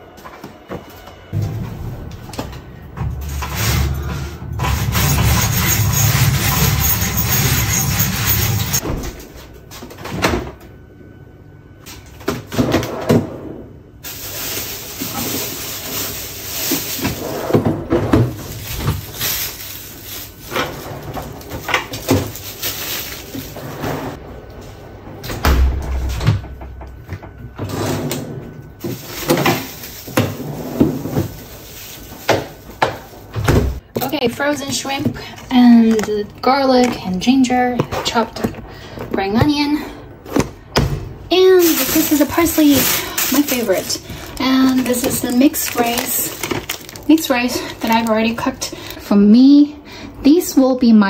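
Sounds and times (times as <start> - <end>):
cupboard doors opening and closing: 32.3 - 33.8.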